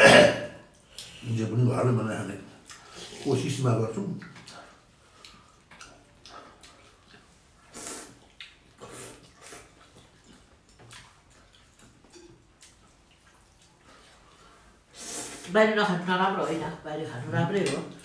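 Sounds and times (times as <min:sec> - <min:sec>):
slurping noodles: 0:07.6 - 0:10.3.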